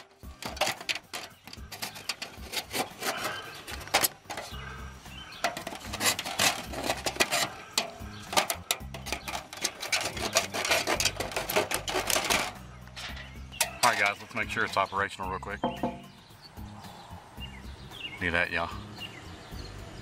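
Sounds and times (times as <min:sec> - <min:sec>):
aluminum foil duct crinkling: 0:00.0 - 0:04.8, 0:05.4 - 0:14.8.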